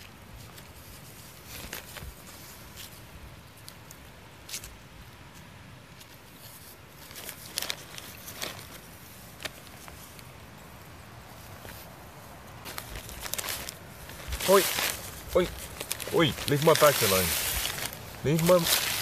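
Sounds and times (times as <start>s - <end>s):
plastic bags crinkling and rustling: 0.0s - 3.0s, 6.5s - 10.6s, 11.3s - 19.0s.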